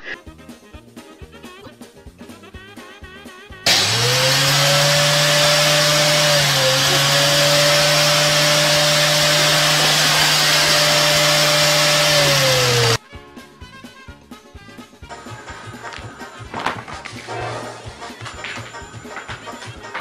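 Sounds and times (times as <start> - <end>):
electric motor whining: 3.7 - 13.0.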